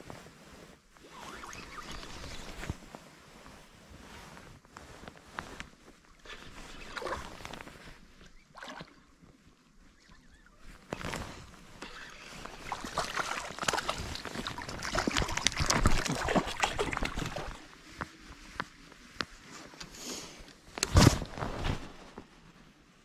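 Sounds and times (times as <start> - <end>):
water splashing and sloshing: 1.0 - 2.9, 6.0 - 19.7.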